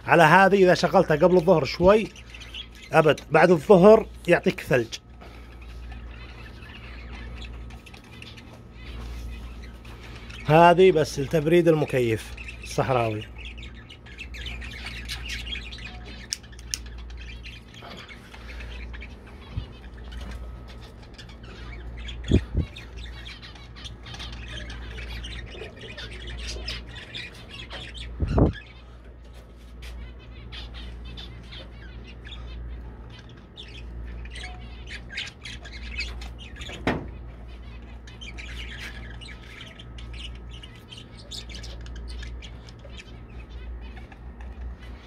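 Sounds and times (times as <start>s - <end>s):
budgerigars chattering and chirping: 0.0s - 45.0s
steady low hum: 0.0s - 45.0s.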